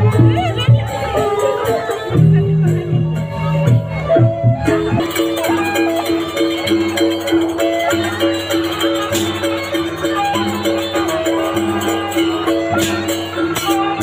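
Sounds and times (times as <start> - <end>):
large hand drums: 0.0 - 14.0
jangling cymbal strokes: 4.7 - 14.0.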